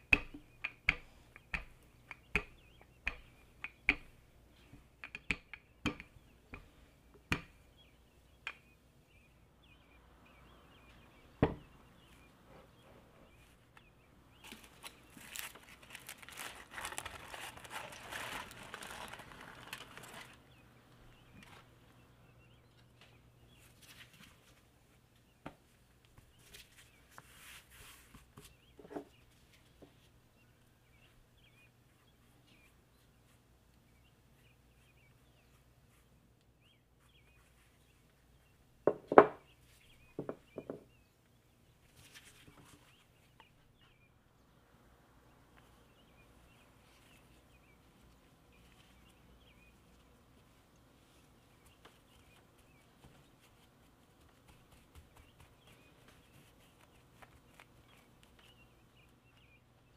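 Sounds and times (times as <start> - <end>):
faint birdsong chirps: 0.0 - 59.9
soft rustles: 12.0 - 20.5, 23.0 - 30.2, 37.0 - 38.3, 41.8 - 43.9, 46.5 - 59.5.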